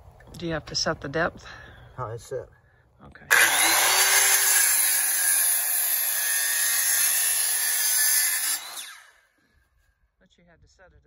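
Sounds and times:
saw blade spinning down: 3.3 - 9.2
circular saw cutting log: 3.3 - 9.4.

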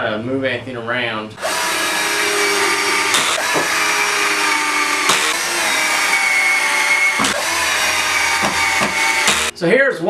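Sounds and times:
cordless drill whine: 1.4 - 9.5
sharp clicks: 3.1 - 3.7, 5.0 - 5.5.

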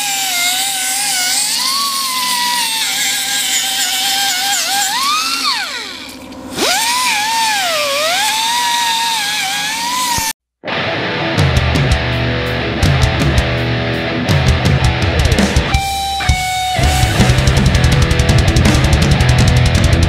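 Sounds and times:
pneumatic cut-off tool cutting metal: 0.0 - 10.3.

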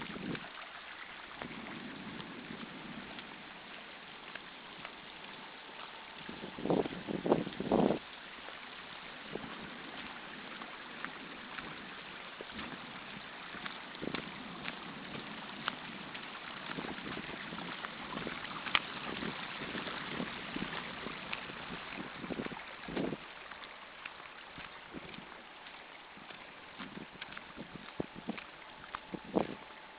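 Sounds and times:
rain and running water: 0.0 - 29.9
faint ticks and taps: 2.2 - 7.6, 12.4 - 29.7.

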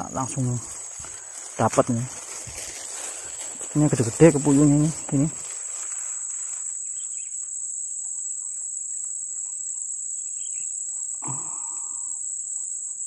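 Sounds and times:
insects chorus: 0.0 - 13.0
faint bird chirps: 5.1 - 13.0.

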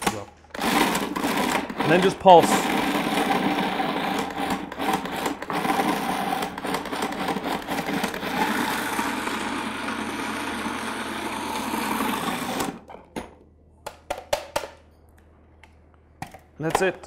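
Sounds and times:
food processor chopping vegetables: 0.0 - 12.9.

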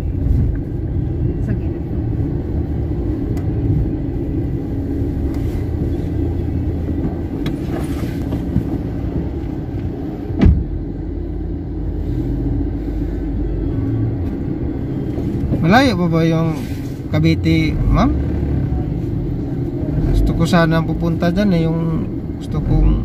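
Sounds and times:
car engine and road noise: 0.0 - 23.0
sharp thump: 10.4 - 10.7.

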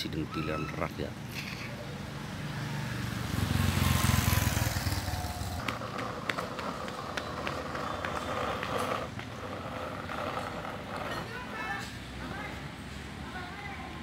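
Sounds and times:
street background noise: 0.0 - 14.0
vehicle engine passing by: 1.8 - 12.2.

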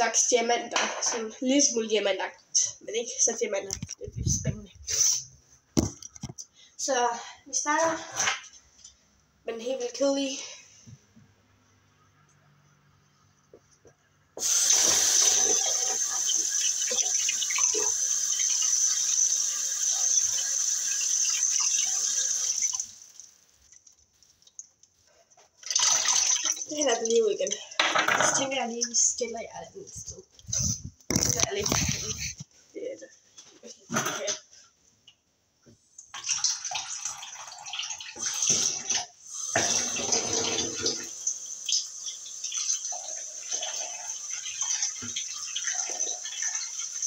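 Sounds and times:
tap water running into sink: 14.4 - 23.3, 36.2 - 47.0
water splashing into ice cube tray: 25.6 - 27.6.

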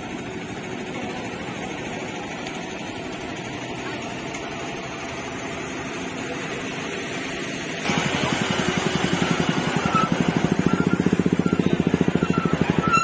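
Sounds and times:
road noise: 0.0 - 13.0
vehicle engine running close by: 0.0 - 13.0.

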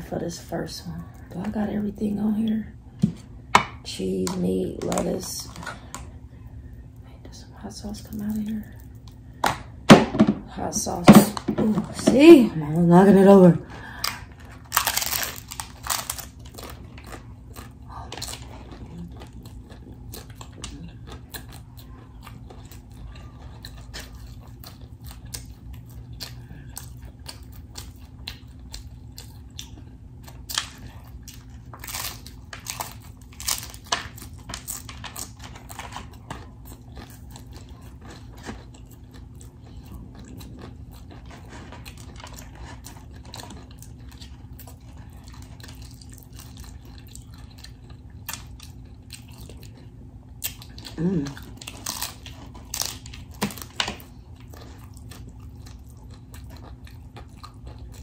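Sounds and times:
crunching taco shell: 13.8 - 58.0.

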